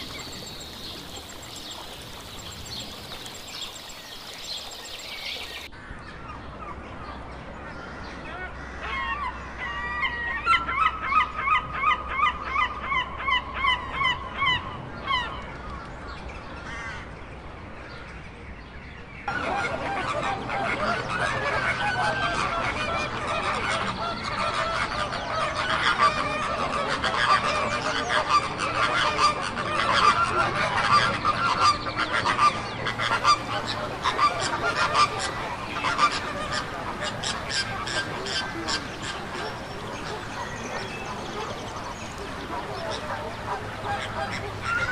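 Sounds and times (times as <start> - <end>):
flamingos honking and chattering: 0.0 - 5.7, 19.3 - 44.9
gulls calling: 0.0 - 5.7, 19.3 - 44.9.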